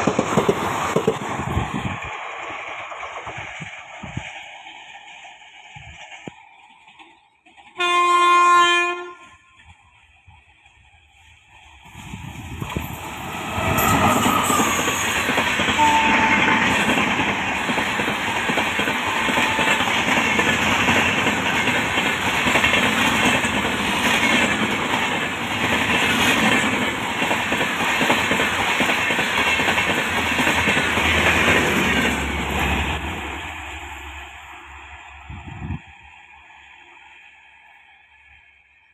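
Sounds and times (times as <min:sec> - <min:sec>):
train wheels rumbling over rail joints: 0:00.0 - 0:07.8, 0:09.6 - 0:37.2
short high tones: 0:13.1 - 0:15.3.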